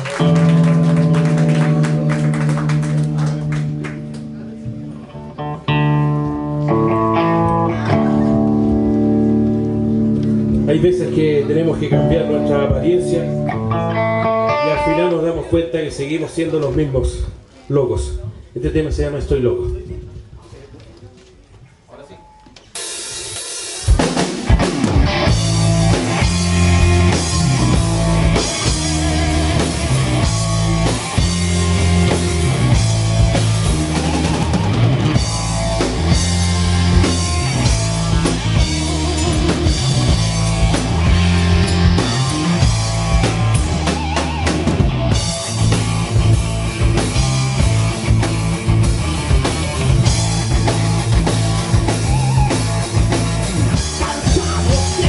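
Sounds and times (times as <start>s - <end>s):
low bass line: 0.0s - 15.0s, 24.5s - 55.0s
live rock band playing: 0.0s - 15.5s, 22.8s - 55.0s
bass drum: 23.8s - 55.0s.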